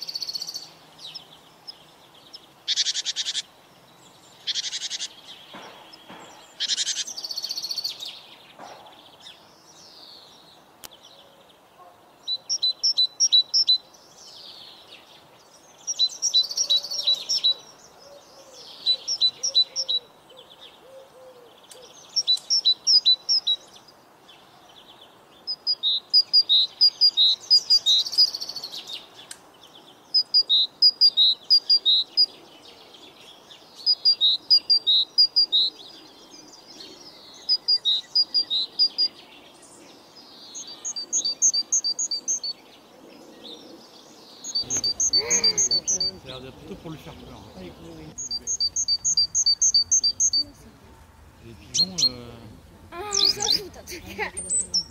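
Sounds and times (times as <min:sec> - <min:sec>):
birds chirping: 0:00.0 - 0:54.9
bird repeating high two-pitched notes: 0:48.2 - 0:50.4.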